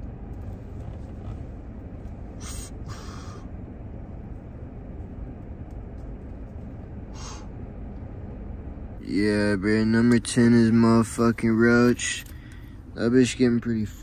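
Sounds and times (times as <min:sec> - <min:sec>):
low rumble of car cabin: 0:00.0 - 0:14.0
person exhaling smoke: 0:02.4 - 0:03.5, 0:07.1 - 0:07.5.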